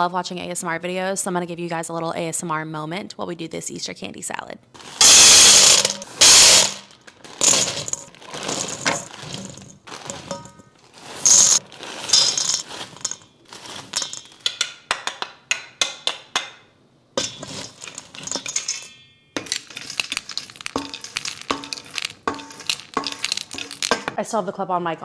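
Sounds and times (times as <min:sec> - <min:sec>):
candies rattling into a jar: 0:04.8 - 0:14.7, 0:19.4 - 0:24.2.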